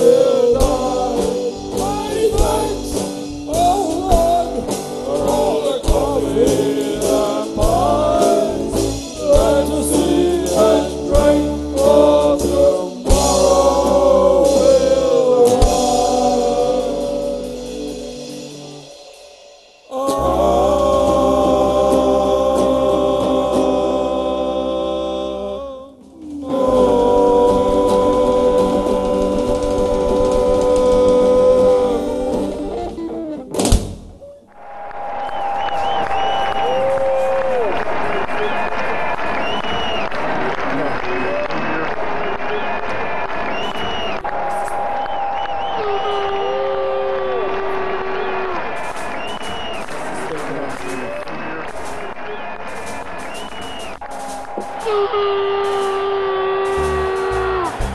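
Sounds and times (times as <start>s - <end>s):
person singing: 0.0s - 19.2s, 19.9s - 33.4s, 54.8s - 57.9s
guitar: 0.0s - 19.3s, 19.9s - 34.5s, 43.5s - 57.9s
drum hits: 0.0s - 23.9s, 26.1s - 34.2s, 48.7s - 57.9s.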